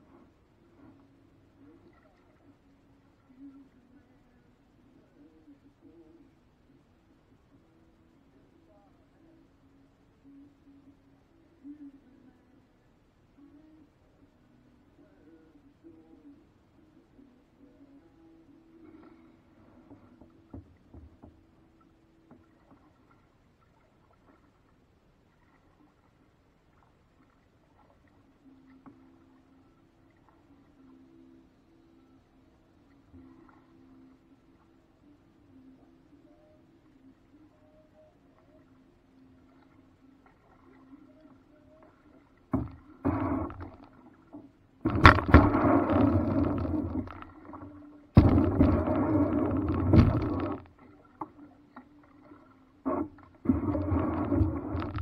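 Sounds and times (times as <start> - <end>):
water splashing around boat: 0.0 - 3.9, 18.8 - 31.2, 38.4 - 55.0
paddle knocking against boat hull: 19.9 - 21.5, 48.2 - 50.6.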